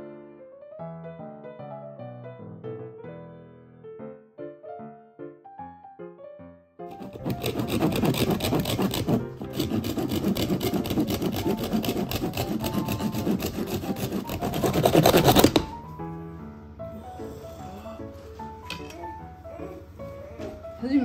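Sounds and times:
hand saw cutting coconut shell: 6.9s - 15.7s.

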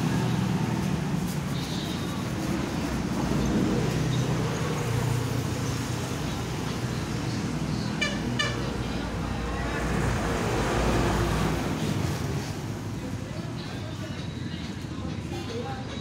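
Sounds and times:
road traffic passing: 0.0s - 16.0s
vehicle passing loudly: 6.9s - 12.6s.

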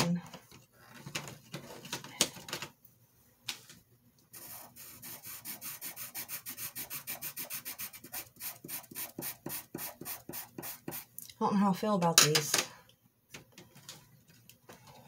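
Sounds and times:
pastel pencil rubbing on paper: 4.3s - 11.1s.

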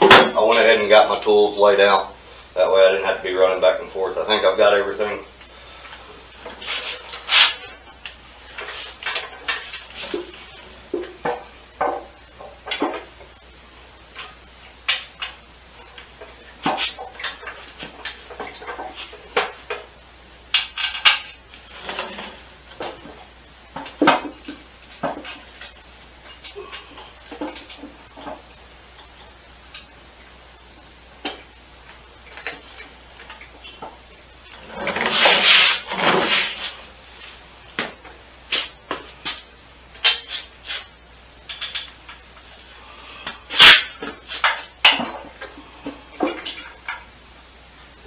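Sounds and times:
metal clanks and scrapes: 6.4s - 13.1s, 20.5s - 23.2s, 34.5s - 36.9s, 43.5s - 45.6s.

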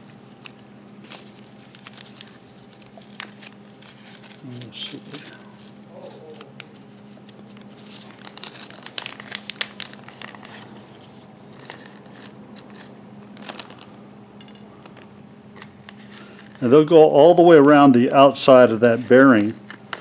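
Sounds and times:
plastic bag crinkling: 0.4s - 14.0s.

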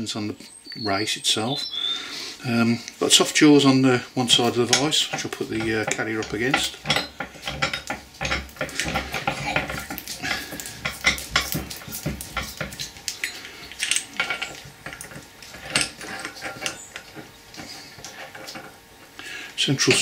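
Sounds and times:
steel parts clinking: 3.1s - 18.8s.

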